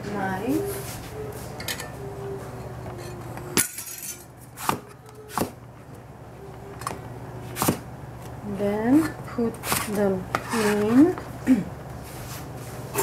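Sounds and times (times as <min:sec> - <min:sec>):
knife chopping on plastic board: 0:04.6 - 0:05.6, 0:07.6 - 0:07.8.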